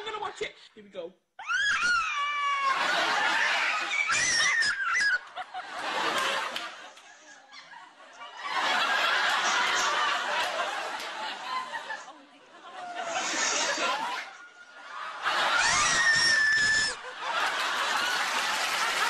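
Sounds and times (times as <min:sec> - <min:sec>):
woman shrieking: 0:01.4 - 0:02.8, 0:03.9 - 0:05.2, 0:15.5 - 0:17.0
audience laughing: 0:02.5 - 0:19.0.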